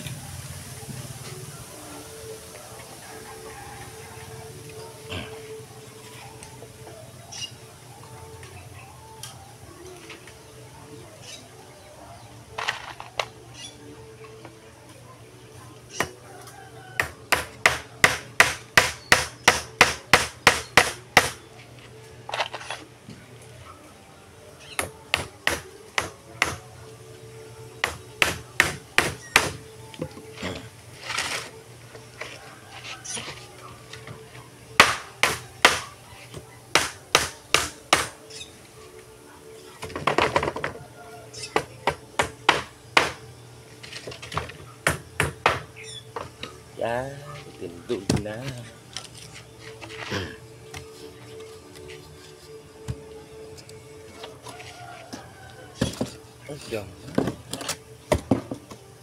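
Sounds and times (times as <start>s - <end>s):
hammer striking nails into wood: 17.0s - 21.4s, 24.8s - 26.6s, 27.8s - 29.6s, 34.8s - 35.9s, 36.7s - 38.2s, 41.9s - 43.2s, 44.9s - 45.7s.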